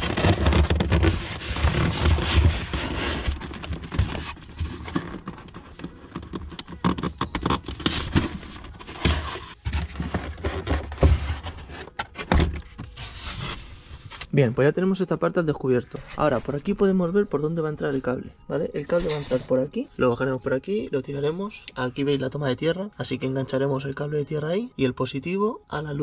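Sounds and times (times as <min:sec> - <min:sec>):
foam scraping and rubbing: 0:00.0 - 0:14.5, 0:18.9 - 0:19.7.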